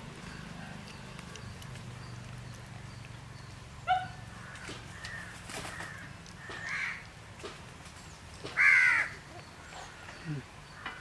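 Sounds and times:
crow cawing: 4.3s - 7.0s, 8.6s - 9.2s.

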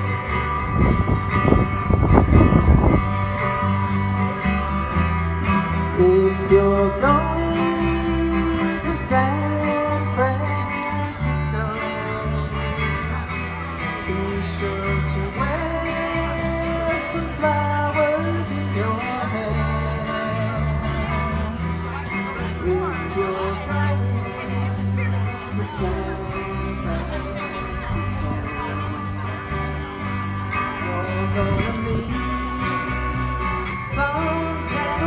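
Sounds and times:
stepping bass line: 0.0s - 22.9s
live guitar music over speaker: 0.0s - 35.0s
low microphone rumble: 0.0s - 35.0s.

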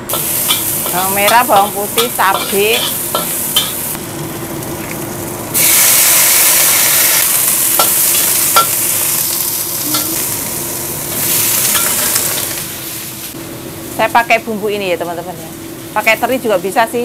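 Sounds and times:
oil sizzling in a wok: 0.0s - 17.0s
metal spatula scraping a wok: 0.1s - 3.9s.

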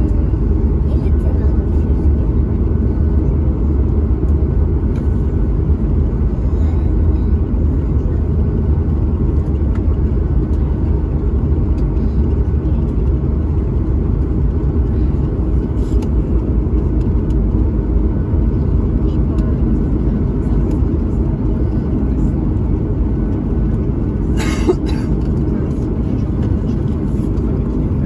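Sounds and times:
airliner cabin engine rumble: 0.0s - 28.0s.

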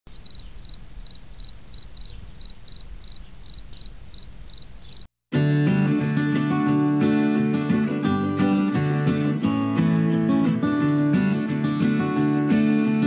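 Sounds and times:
cricket chirping: 0.1s - 5.1s
strummed acoustic guitar music: 5.3s - 13.0s.

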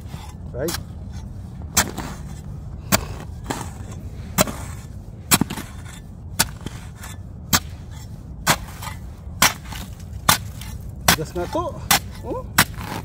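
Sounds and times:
shovel chopping into hard snow: 1.7s - 2.3s, 2.9s - 7.8s, 8.4s - 13.0s.

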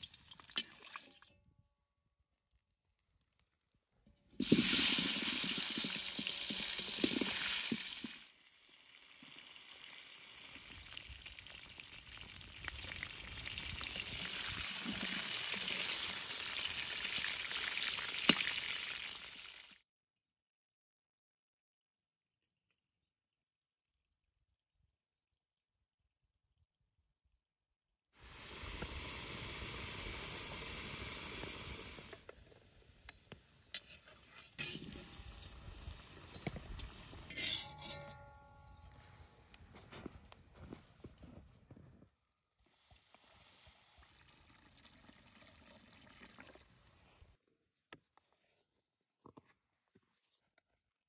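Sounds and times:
potatoes sizzling in oil: 4.4s - 19.7s, 28.2s - 32.1s
metal skimmer stirring: 37.3s - 38.7s.

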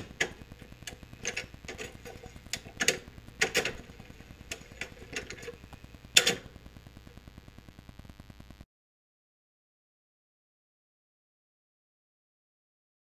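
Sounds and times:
vinyl record crackling: 0.0s - 8.6s
vinyl record pops: 0.0s - 8.6s.

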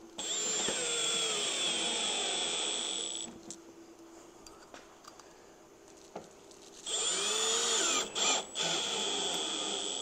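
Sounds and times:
cordless drill whining: 0.2s - 3.3s, 6.8s - 10.0s.

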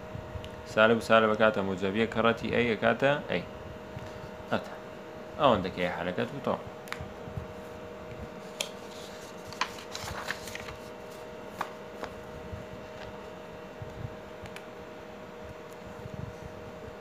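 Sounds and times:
faint steady hum: 0.0s - 17.0s
paper rustling: 8.4s - 12.3s.

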